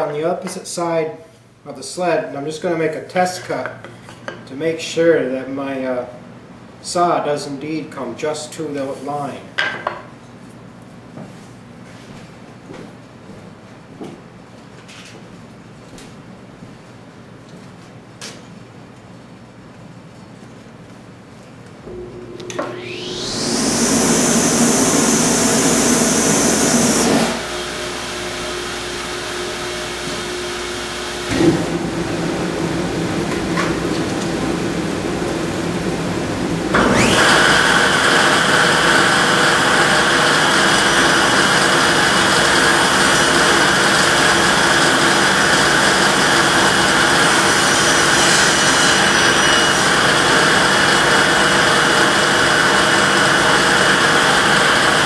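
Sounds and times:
table saw running: 21.9s - 55.0s.

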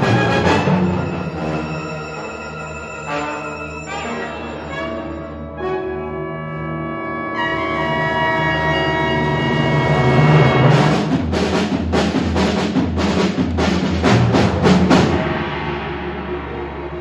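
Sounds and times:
heavy drum strokes: 10.0s - 17.0s.

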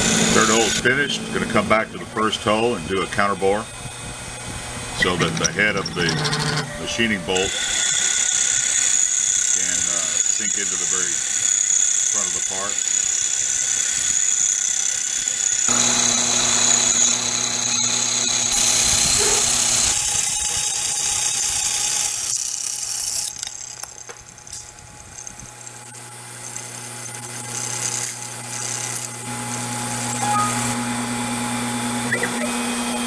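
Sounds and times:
milling machine whine and cutting: 0.0s - 24.6s.

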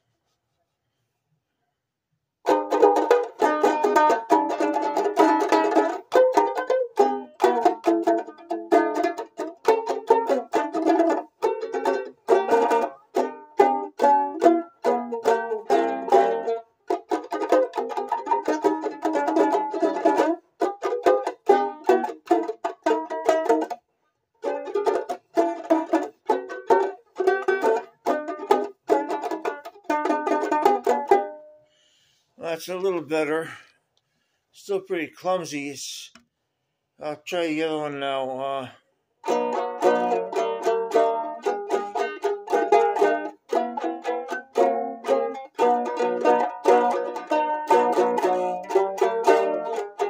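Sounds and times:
banjo ukulele strumming: 2.4s - 31.6s, 39.2s - 50.0s.

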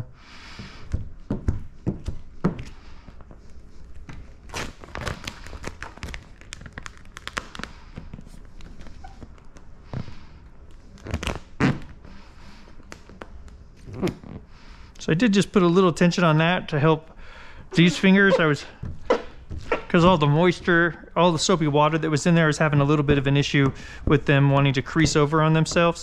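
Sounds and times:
plastic film crinkling: 3.9s - 9.8s.

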